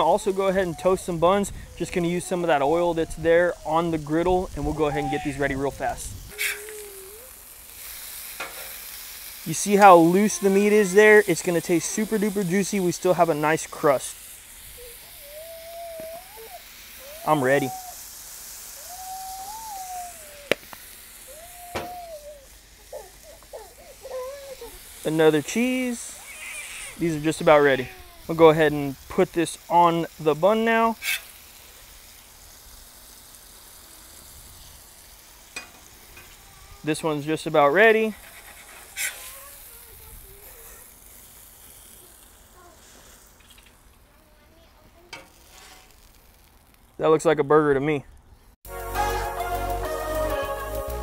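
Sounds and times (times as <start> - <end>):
faint griddle sizzle: 0.0 - 51.0
steady high hiss: 0.0 - 51.0
dog whining: 6.3 - 7.5, 14.7 - 18.1, 18.8 - 20.5, 21.2 - 25.0.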